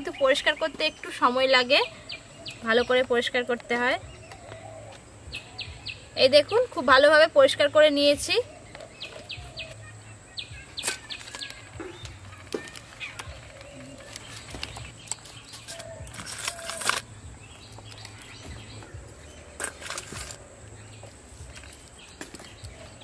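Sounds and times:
birds chirping: 0.0 - 23.0
crab shells cracking: 12.4 - 17.1.

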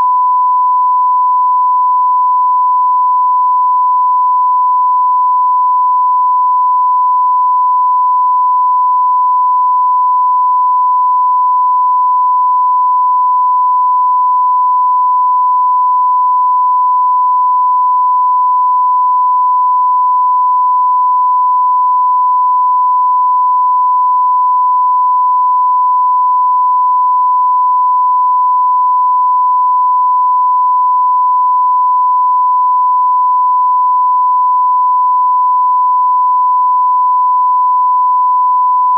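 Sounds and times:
sine-wave test tone: 0.0 - 38.9.

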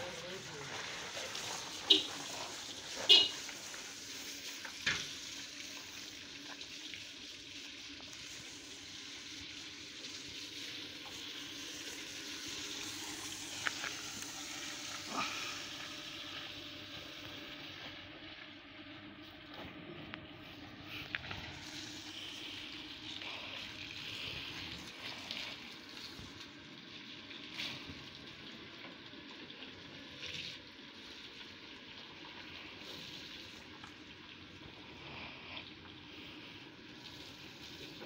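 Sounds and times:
hose water jet spraying: 0.0 - 18.0, 20.4 - 26.6, 34.8 - 38.0.

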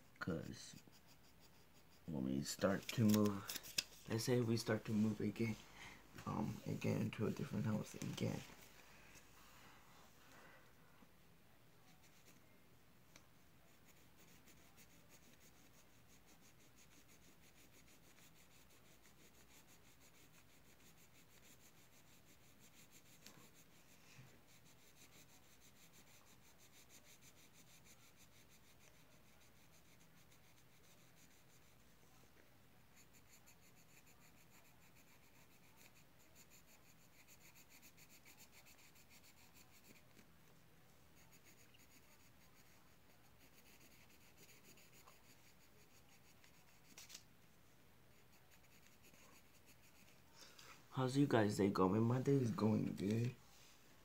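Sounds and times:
pencil scratching on paper: 0.2 - 5.6, 11.8 - 12.4, 13.7 - 31.9, 32.9 - 40.2, 41.1 - 47.2, 48.1 - 50.3.

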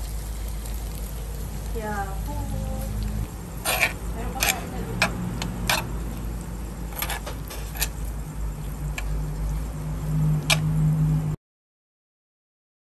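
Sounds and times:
metal spoon scraping a sizzling plate: 2.8 - 10.9.

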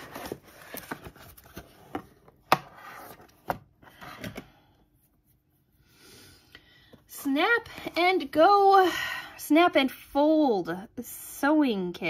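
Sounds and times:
packaging rustling: 0.0 - 2.2.

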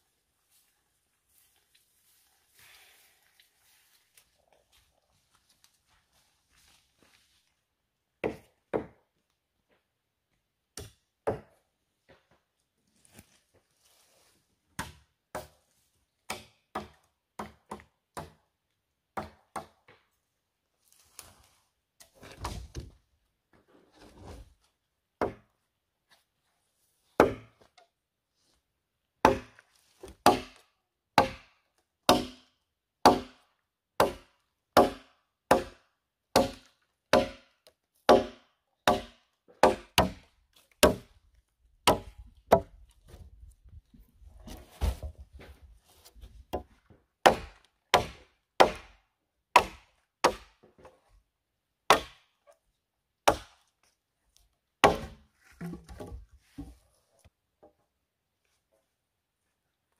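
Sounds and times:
machete chopping wood: 16.3 - 18.4, 27.2 - 27.6, 29.2 - 30.6, 31.2 - 33.4, 34.0 - 37.5, 38.1 - 40.2, 40.8 - 41.1, 41.8 - 42.8, 46.5 - 49.0, 49.6 - 50.6, 51.9 - 52.3, 53.2 - 53.6, 54.8 - 56.1.

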